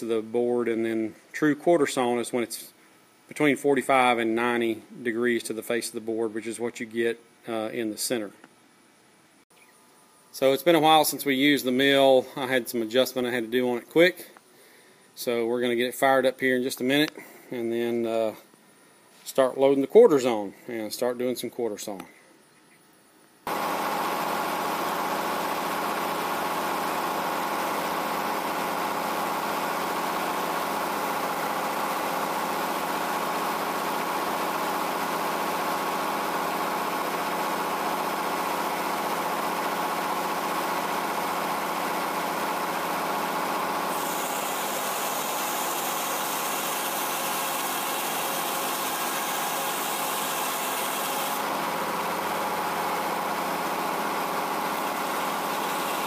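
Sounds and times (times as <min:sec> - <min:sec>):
sawmill engine and blade humming: 0:23.5 - 0:56.0
saw blade cutting wood hiss: 0:43.9 - 0:51.4.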